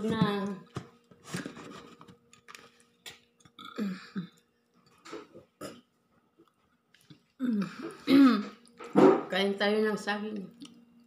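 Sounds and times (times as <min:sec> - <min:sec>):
person burping: 0:03.6 - 0:04.4, 0:07.4 - 0:08.6.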